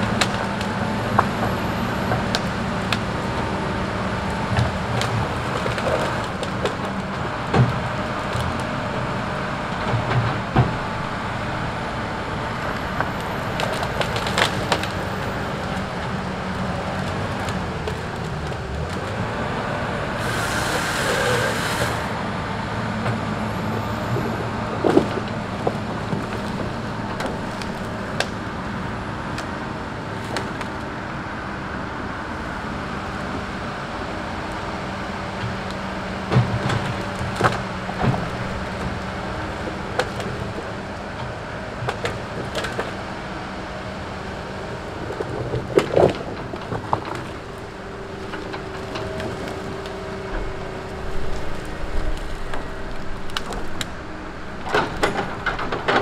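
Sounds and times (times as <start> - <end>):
diesel engine running: 0.0 - 56.0
logs knocking together: 24.0 - 28.4, 36.3 - 43.1, 44.8 - 56.0.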